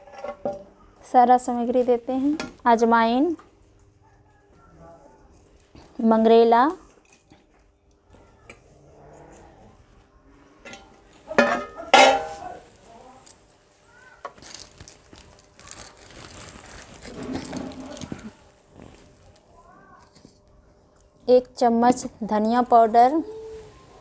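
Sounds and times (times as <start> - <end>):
steel bowls clinking: 10.6 - 12.6.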